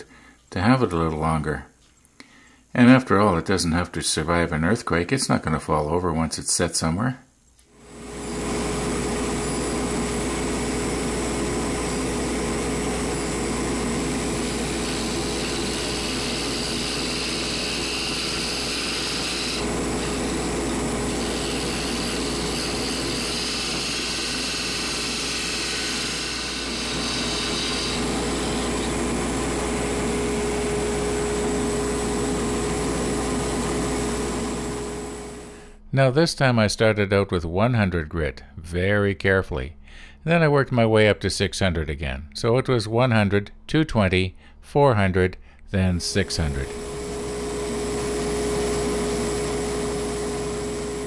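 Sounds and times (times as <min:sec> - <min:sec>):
wood lathe motor hum: 0:07.9 - 0:35.6, 0:46.1 - 0:51.0
chisel cutting wood hiss: 0:08.1 - 0:31.2.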